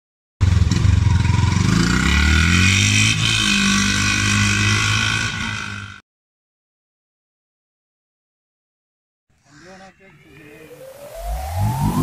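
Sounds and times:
motorcycle engine accelerating: 0:00.4 - 0:06.0.

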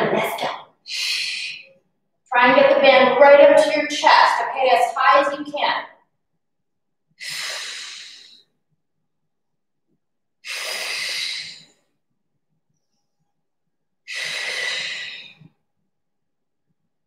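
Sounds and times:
woman breathing hard: 0:07.2 - 0:08.5, 0:10.4 - 0:11.8, 0:14.1 - 0:15.5.

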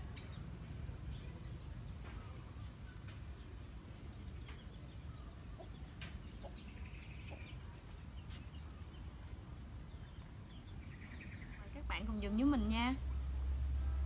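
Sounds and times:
chickens clucking: 0:00.0 - 0:09.4.

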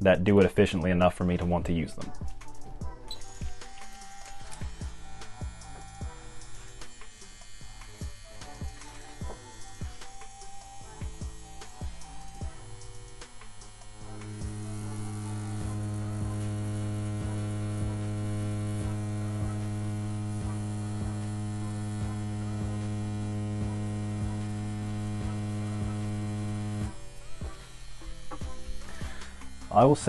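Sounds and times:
tattoo machine motor hum: 0:02.2 - 0:30.0.

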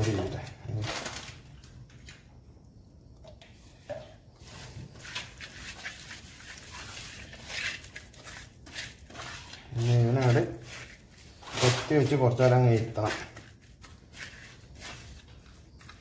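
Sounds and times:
wet squelching of fish in marinade: 0:04.4 - 0:16.0.

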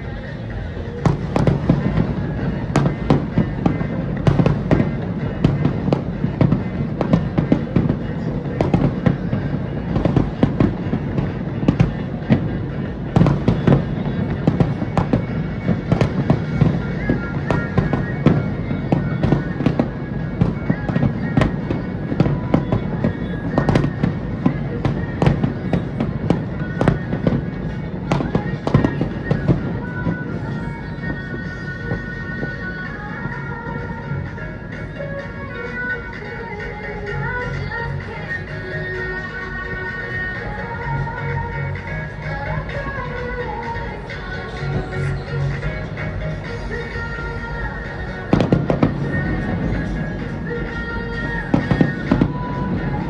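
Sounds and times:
continuous low rumble: 0:00.0 - 0:53.0.

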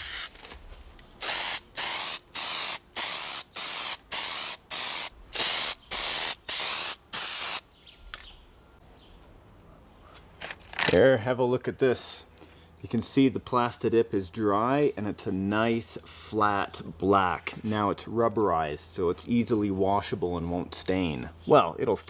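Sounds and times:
spray can hissing bursts: 0:00.0 - 0:00.3, 0:01.2 - 0:07.6.

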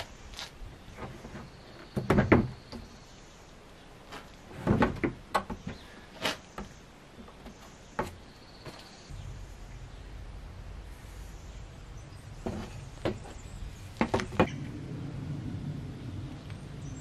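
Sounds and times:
knocking and clattering of sheeting: 0:01.0 - 0:02.9, 0:04.2 - 0:08.8, 0:14.0 - 0:14.6.

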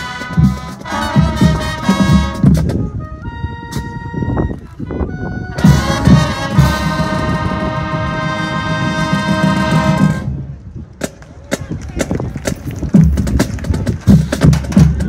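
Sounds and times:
brass section sustained chord: 0:00.0 - 0:02.4, 0:05.6 - 0:10.3.

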